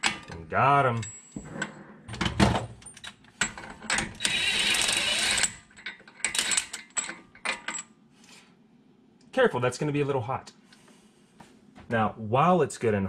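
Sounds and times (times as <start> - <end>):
impact wrench whining: 3.4 - 5.7.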